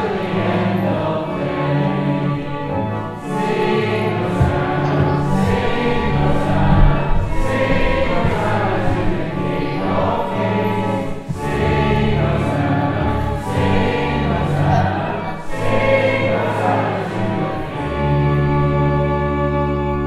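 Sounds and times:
singing voices: 0.0 - 19.2
slow sustained chords: 0.0 - 20.0.

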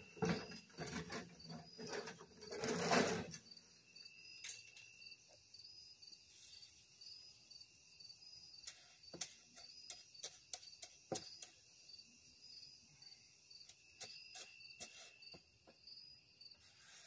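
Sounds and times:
crickets chirping: 0.0 - 17.0
shovel scraping wet concrete: 0.3 - 3.4.

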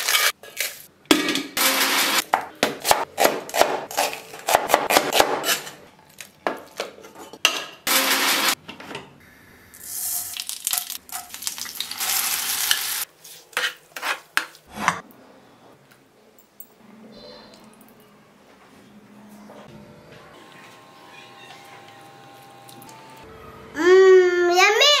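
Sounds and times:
hot oil sizzling in a pan: 9.8 - 13.0.

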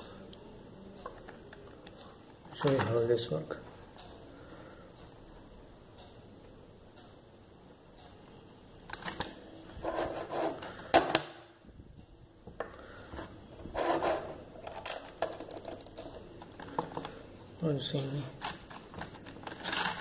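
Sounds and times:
rubbing of handled tablet: 9.8 - 10.6, 13.2 - 14.5.

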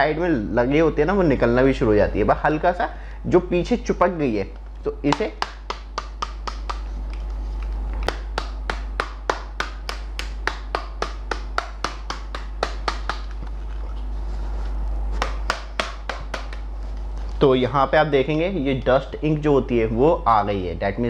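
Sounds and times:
hand tapping plastic cartridge: 5.1 - 13.6, 15.2 - 16.7.

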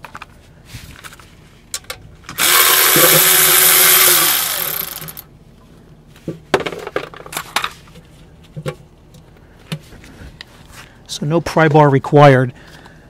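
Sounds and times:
cordless power tool spinning: 2.4 - 5.2.

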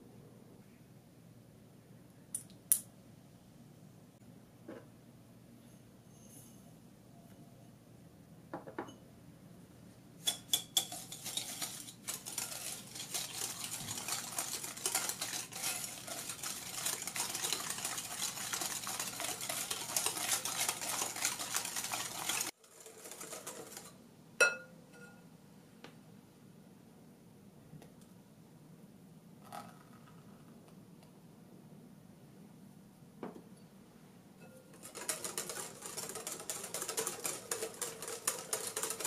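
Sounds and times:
whisk beating in glass bowl: 10.2 - 24.6, 34.4 - 39.0.

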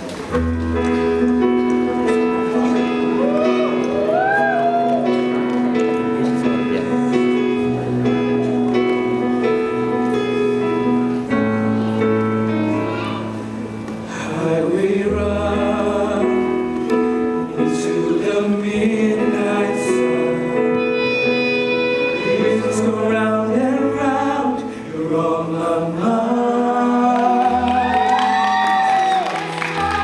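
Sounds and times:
choir singing sustained chords: 14.1 - 16.8, 17.4 - 27.5.

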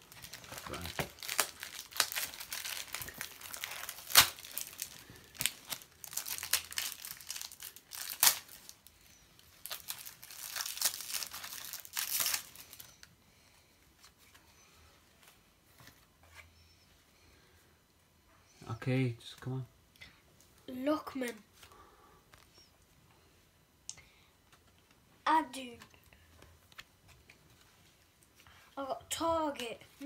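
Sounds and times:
foil wrapper crinkling and tearing: 0.0 - 13.1.

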